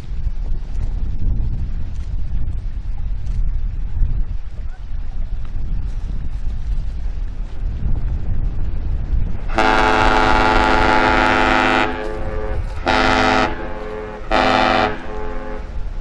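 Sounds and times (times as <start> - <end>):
wind rumble: 0.0 - 16.0
ship horn blasts: 9.5 - 16.0.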